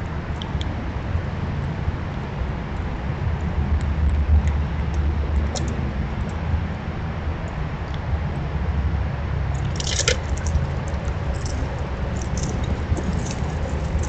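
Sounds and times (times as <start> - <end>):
steady low rumble: 0.0 - 14.0
squirrel scratching in wood chips: 9.6 - 14.0.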